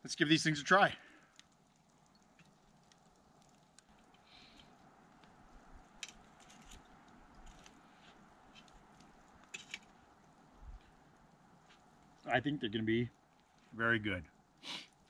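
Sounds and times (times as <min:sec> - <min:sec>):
faint hiss: 0:00.0 - 0:15.0
faint sharp clicks: 0:01.2 - 0:12.2.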